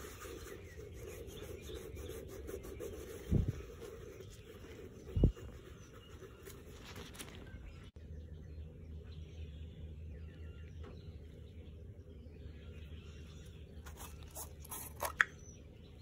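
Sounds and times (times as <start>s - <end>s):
gloved hands rubbing leather: 0.0s - 7.4s
low steady hum: 0.0s - 16.0s.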